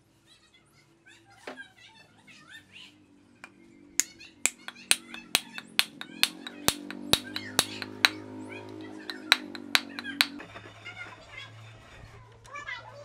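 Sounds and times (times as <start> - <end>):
hammer knocking wooden wedge: 4.5 - 8.2, 8.8 - 10.4
soft hammer taps: 4.5 - 8.2, 9.1 - 10.4.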